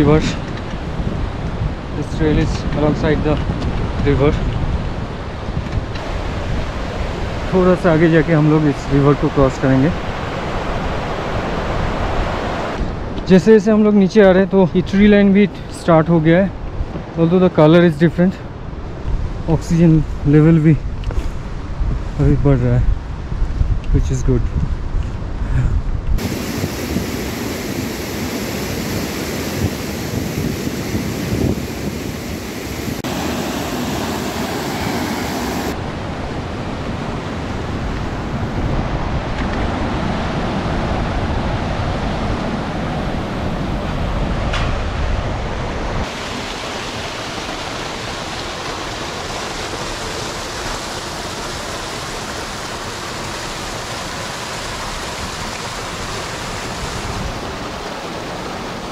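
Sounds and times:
rushing mountain river: 4.0s - 15.2s, 26.2s - 58.9s.

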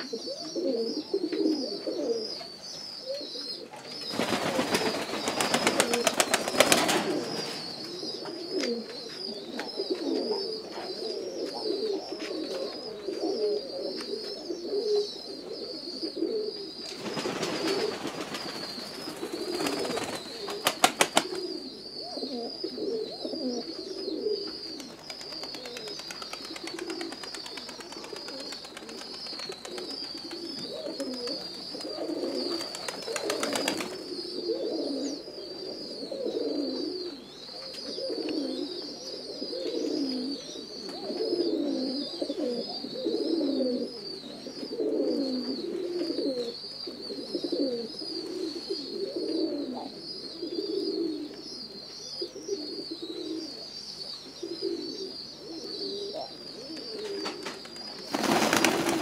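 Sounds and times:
pigeons cooing: 0.0s - 59.0s
rapid wing-flapping: 4.1s - 7.2s, 17.0s - 21.4s, 25.1s - 31.4s, 32.5s - 34.0s, 58.1s - 59.0s.

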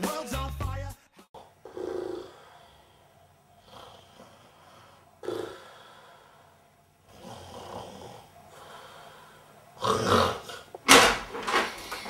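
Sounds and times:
person snoring: 1.3s - 10.7s.

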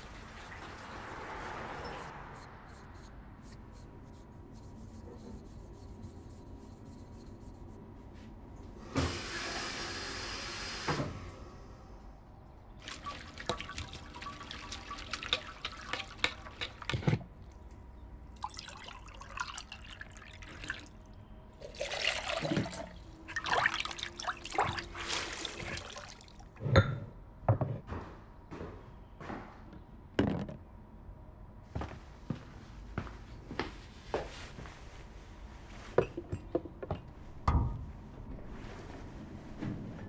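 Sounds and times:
liquid pouring and dripping: 0.0s - 2.1s, 12.8s - 26.6s.

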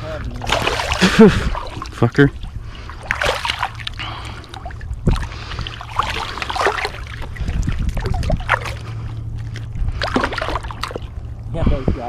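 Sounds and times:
water splashing and sloshing: 0.0s - 12.0s
wind rumble on microphone: 4.7s - 6.1s, 6.8s - 12.0s.

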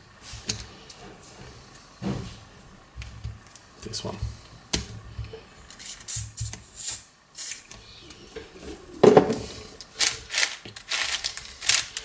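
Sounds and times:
aerosol spray hissing: 5.8s - 7.6s
plastic cube layers clicking: 10.0s - 12.0s.

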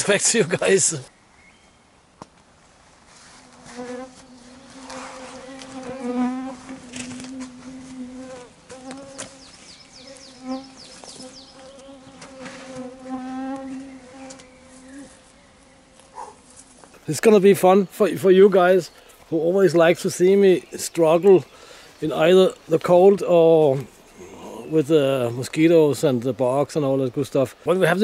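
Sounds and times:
flying insect buzzing: 3.4s - 16.9s.

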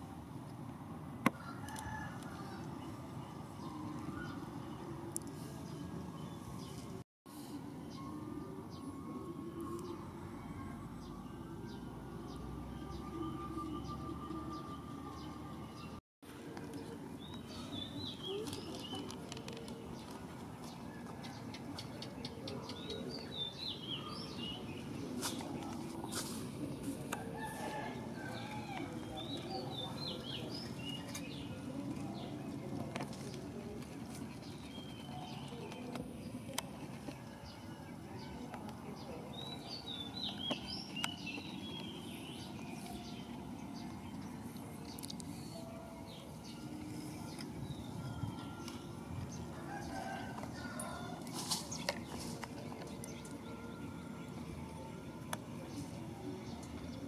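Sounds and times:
low background noise: 0.0s - 57.0s
small birds chirping: 16.7s - 57.0s.

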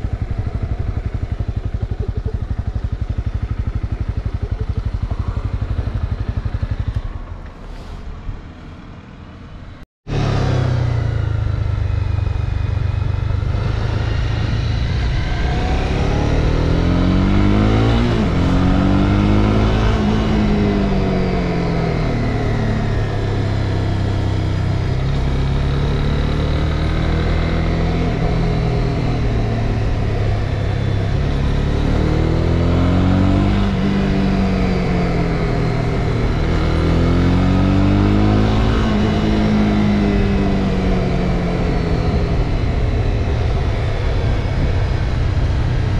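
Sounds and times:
motorcycle engine revving: 0.0s - 7.5s, 10.1s - 45.9s
wind noise on microphone: 38.0s - 45.9s.

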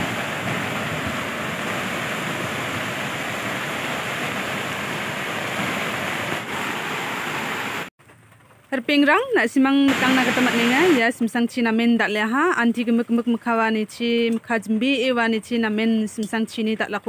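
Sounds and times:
heavy rain: 0.0s - 7.9s, 9.9s - 11.0s
river rushing: 0.0s - 7.9s, 9.9s - 11.0s.

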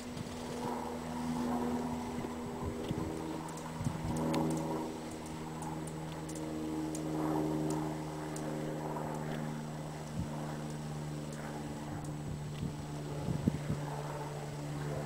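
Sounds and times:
wind buffeting microphone: 0.0s - 6.0s, 9.8s - 15.0s
low machine hum: 0.0s - 15.0s.

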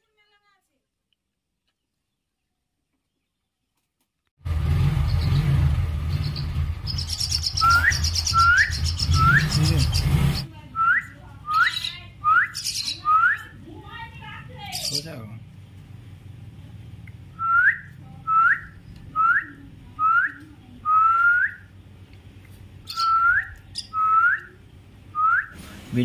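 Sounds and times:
bird chick begging calls: 6.1s - 10.5s, 11.5s - 13.5s, 22.8s - 24.5s.

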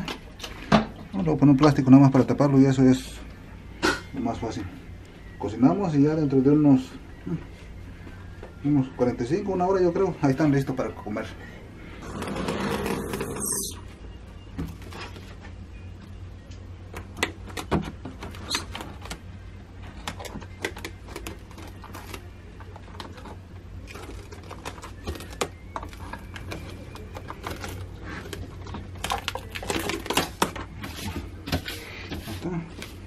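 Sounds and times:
plastic cling wrap crinkling: 20.9s - 30.7s.

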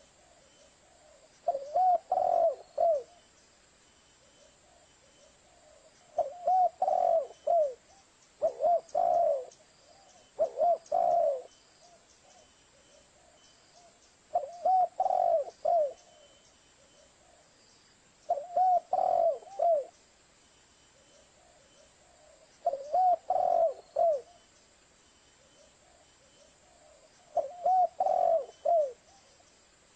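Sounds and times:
dove cooing: 0.0s - 3.2s, 4.2s - 17.5s, 18.3s - 20.0s, 21.4s - 24.4s, 25.4s - 29.3s.

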